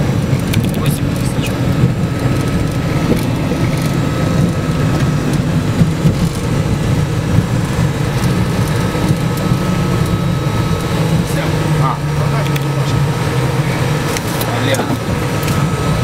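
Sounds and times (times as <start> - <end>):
jet engines rumbling: 0.0 - 16.0
thin steady whine: 0.0 - 16.0.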